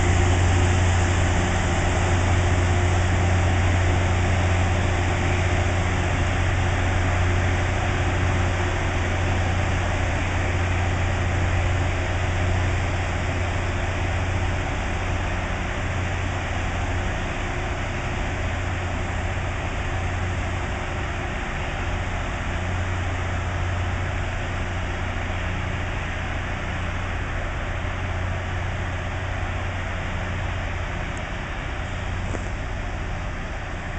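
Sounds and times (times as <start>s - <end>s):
rail grinder grinding: 0.0s - 23.8s
low engine hum: 0.0s - 33.9s.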